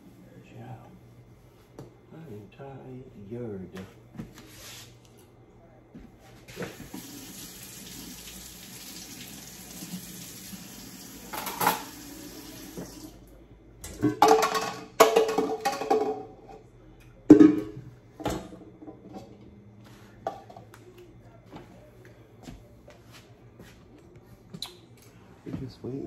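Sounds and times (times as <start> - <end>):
faucet running into steel sink: 6.8 - 13.2.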